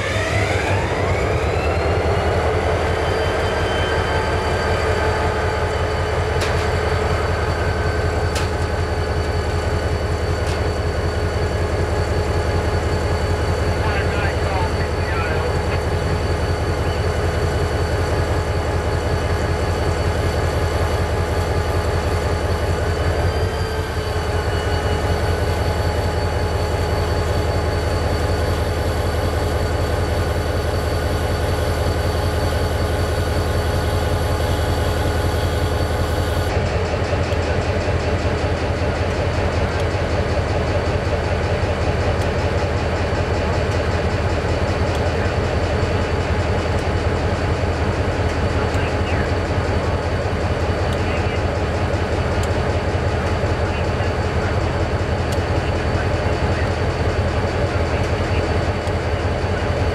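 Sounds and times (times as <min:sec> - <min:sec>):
diesel locomotive idling: 0:00.0 - 0:59.9
high engine whine: 0:00.0 - 0:59.9.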